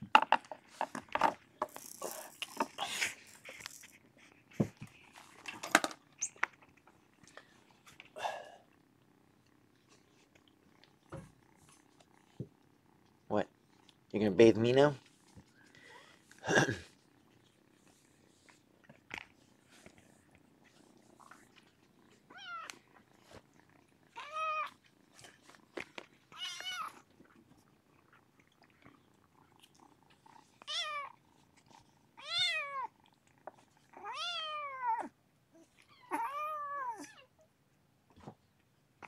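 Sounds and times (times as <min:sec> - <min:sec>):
faint cat purring: 0:01.4 - 0:39.0
cat meowing: 0:24.2 - 0:24.7, 0:26.3 - 0:27.0, 0:34.0 - 0:35.1, 0:35.9 - 0:37.3.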